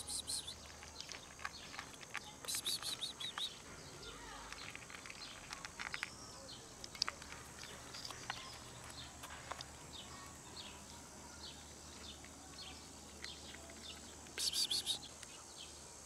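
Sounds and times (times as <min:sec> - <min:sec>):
cats crunching dry kibble: 0:00.0 - 0:15.4
small birds chirping: 0:00.0 - 0:16.0.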